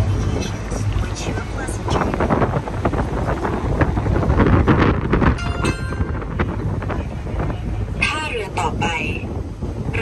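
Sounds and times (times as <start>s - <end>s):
steady low rumble: 0.0s - 10.0s
wind buffeting microphone: 0.0s - 10.0s
high electronic tone: 5.4s - 6.5s.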